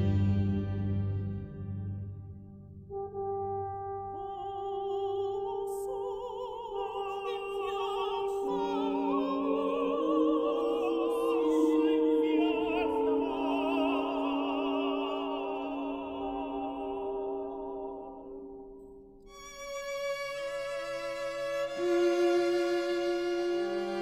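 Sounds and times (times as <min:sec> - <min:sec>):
vocal quartet singing with vibrato: 0:04.0 - 0:18.7, 0:20.9 - 0:24.0
held instrumental notes: 0:19.2 - 0:24.0.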